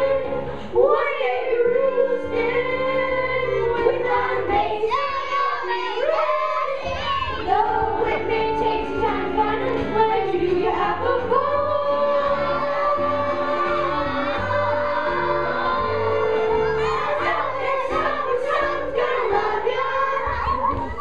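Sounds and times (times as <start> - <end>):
children singing: 0.0 - 21.0
instrumental accompaniment: 0.0 - 21.0.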